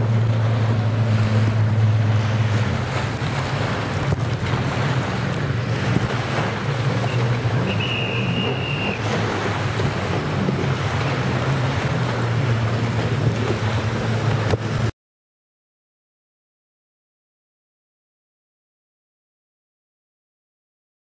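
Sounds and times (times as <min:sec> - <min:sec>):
distant jet skis droning: 0:00.0 - 0:14.9
small surf washing in: 0:00.0 - 0:14.9
wind buffeting microphone: 0:00.0 - 0:14.9.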